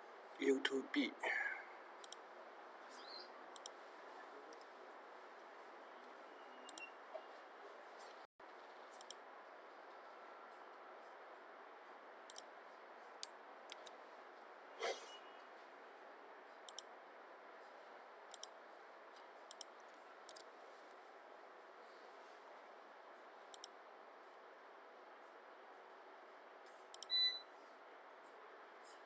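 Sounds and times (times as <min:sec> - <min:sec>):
computer mouse clicking: 0:02.0 - 0:02.2, 0:03.5 - 0:03.8, 0:06.0 - 0:06.9, 0:09.0 - 0:09.2, 0:12.3 - 0:12.5, 0:13.1 - 0:14.0, 0:16.6 - 0:16.9, 0:18.3 - 0:20.5, 0:23.5 - 0:23.8, 0:26.9 - 0:27.1.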